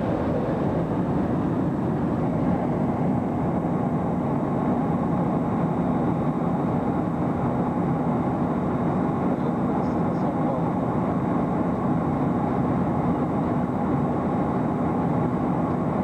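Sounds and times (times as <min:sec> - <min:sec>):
jet airliner cabin noise: 0:00.0 - 0:16.0.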